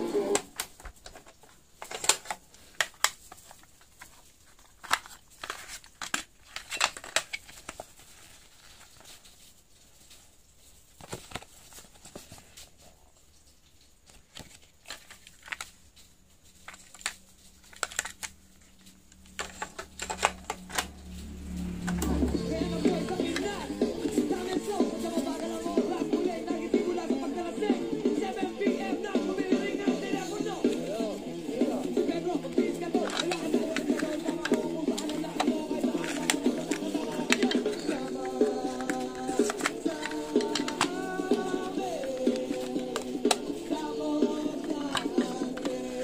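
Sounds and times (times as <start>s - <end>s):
plastic cassette cases clicking: 0.2s - 8.2s, 11.0s - 12.4s, 14.1s - 15.8s, 16.6s - 21.1s, 21.7s - 27.6s, 28.2s - 46.0s
paper insert rustling: 0.4s - 13.0s, 14.1s - 27.6s, 29.1s - 46.0s
low hum: 19.6s - 24.5s.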